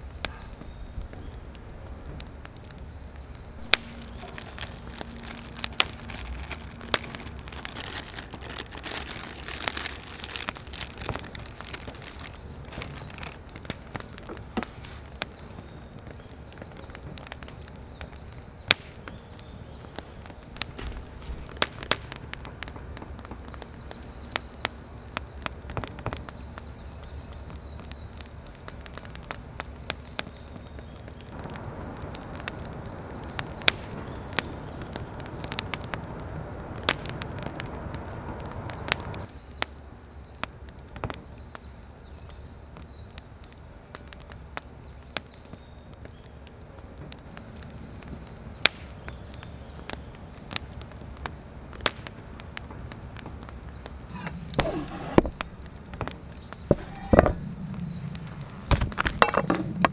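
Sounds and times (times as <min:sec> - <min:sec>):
fire hissing: 0:00.0 - 0:40.9, 0:43.8 - 0:59.9
campfire crackling: 0:00.0 - 0:59.9
wood snapping: 0:00.2 - 0:24.0, 0:53.2 - 0:59.9.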